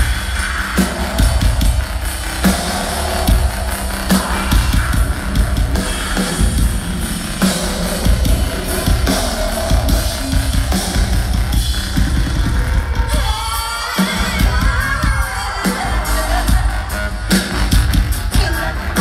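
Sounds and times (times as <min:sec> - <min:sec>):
drum beat: 0:00.0 - 0:19.0
heavy bass: 0:00.0 - 0:19.0
person singing: 0:13.0 - 0:19.0.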